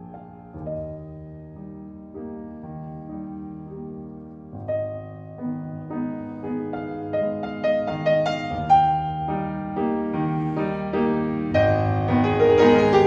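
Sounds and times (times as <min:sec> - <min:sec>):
slow piano chords: 0:00.0 - 0:13.0.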